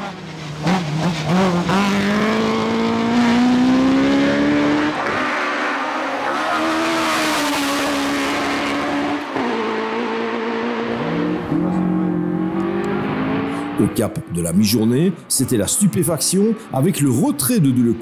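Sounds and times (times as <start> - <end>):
rally car engine at high revs: 0.0 - 14.0.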